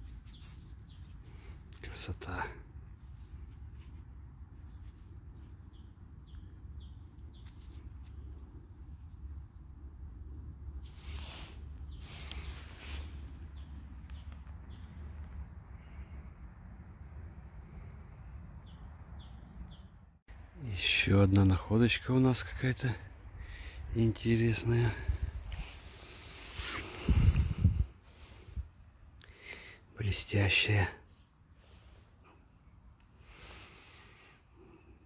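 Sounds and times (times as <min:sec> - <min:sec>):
small bird chirping: 0:00.0 - 0:01.9, 0:04.4 - 0:09.6, 0:10.3 - 0:15.5.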